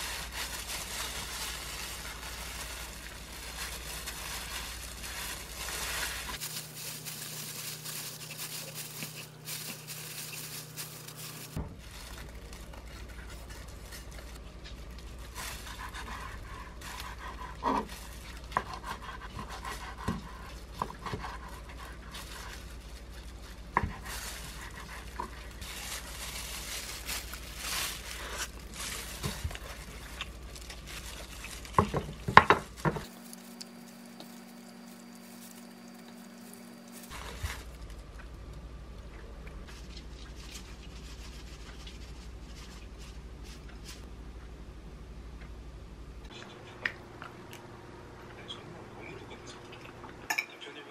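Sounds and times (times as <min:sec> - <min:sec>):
gloved hands rolling food: 0:00.0 - 0:38.6.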